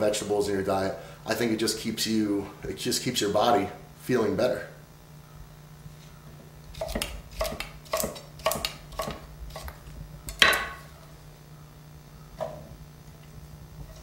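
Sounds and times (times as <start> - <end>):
knife chopping on wooden board: 6.7 - 10.8.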